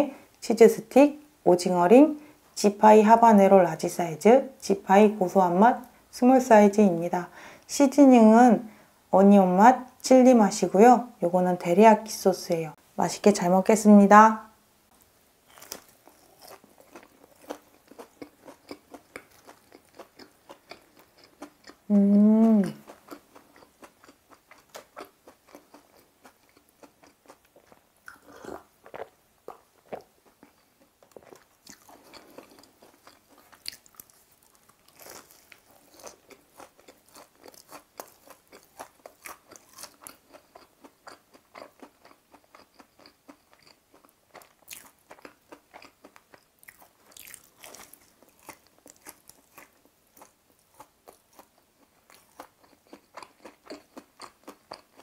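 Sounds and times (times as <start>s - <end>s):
crunchy chewing: 15.4s - 21.9s, 22.6s - 55.0s.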